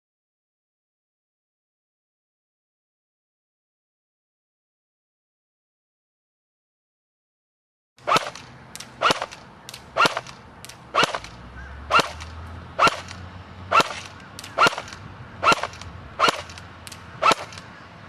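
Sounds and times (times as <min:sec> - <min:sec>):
airsoft rifle shots cracking: 0:08.0 - 0:17.7.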